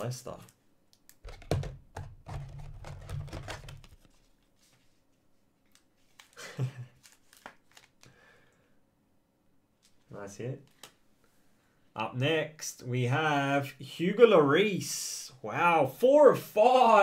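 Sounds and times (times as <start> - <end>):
trading cards rustling: 1.2 - 5.0, 5.6 - 8.1.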